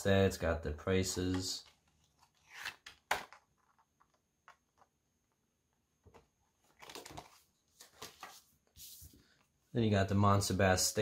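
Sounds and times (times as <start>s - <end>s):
paper rustling: 6.6s - 9.4s.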